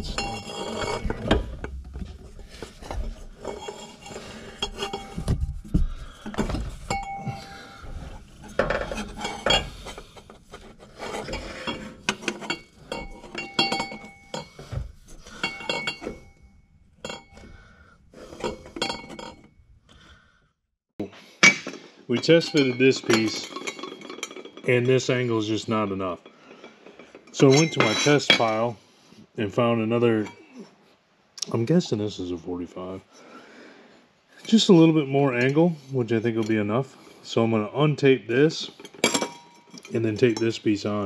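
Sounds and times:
metal pipes clinking and knocking: 0:00.0 - 0:19.7, 0:21.4 - 0:28.7, 0:34.5 - 0:37.5, 0:38.6 - 0:41.0.

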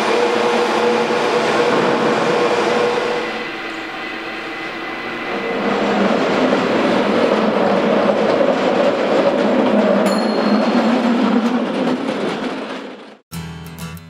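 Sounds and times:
cable car rattling on rails: 0:00.0 - 0:13.2
short high metallic ring: 0:10.1 - 0:10.8.

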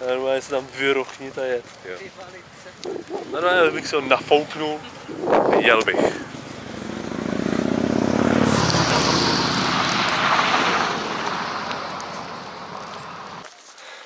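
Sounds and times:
vehicle passing by: 0:02.8 - 0:13.4.

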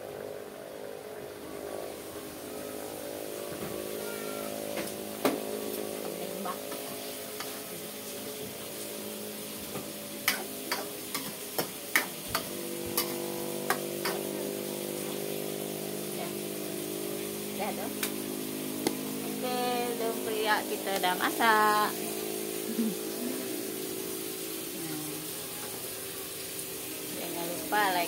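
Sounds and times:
low hum: 0:12.3 - 0:25.3.

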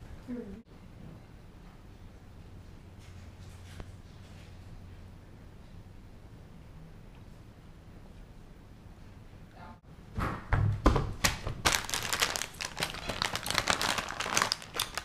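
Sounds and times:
plastic snack bag crinkling: 0:11.2 - 0:15.0.

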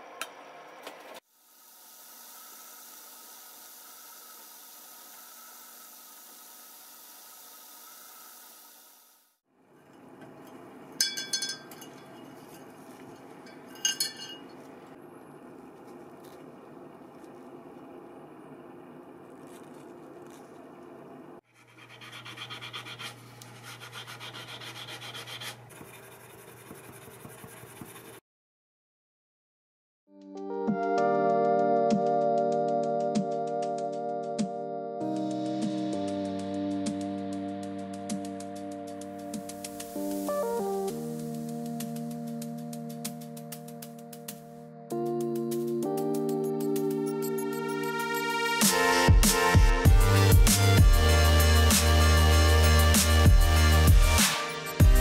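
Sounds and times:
steady background hum: 0:09.7 - 0:28.1
steel wool scrubbing metal: 0:09.8 - 0:14.6, 0:21.5 - 0:28.2.

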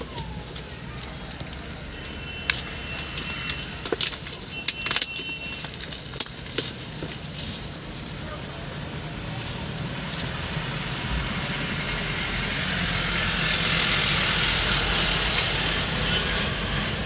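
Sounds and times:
plastic shrink-wrap crinkling and tearing: 0:00.0 - 0:16.0.

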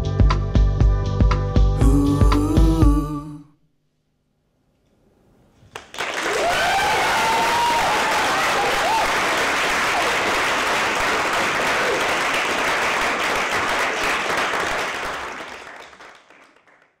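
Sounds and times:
audience applauding: 0:05.7 - 0:17.0
audience cheering: 0:05.9 - 0:15.8.

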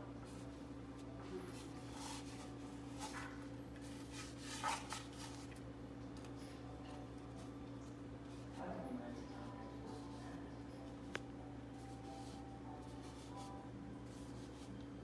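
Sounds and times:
steady low hum: 0:00.0 - 0:15.0
paintbrush scrubbing on paper: 0:01.5 - 0:05.5, 0:11.8 - 0:14.8.

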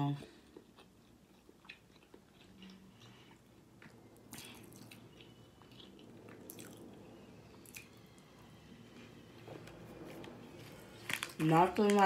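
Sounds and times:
person chewing food: 0:00.3 - 0:08.3.

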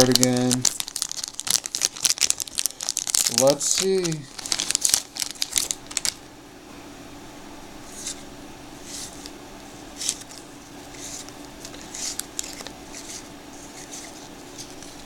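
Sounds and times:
faint steady hum: 0:00.0 - 0:15.0
cards sliding papery swish: 0:07.9 - 0:08.2, 0:10.0 - 0:15.0.

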